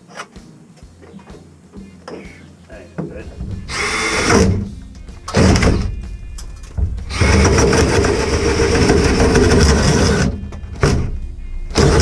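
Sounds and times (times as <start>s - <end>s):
cordless drill boring into wood: 3.7s - 4.6s, 7.1s - 10.3s.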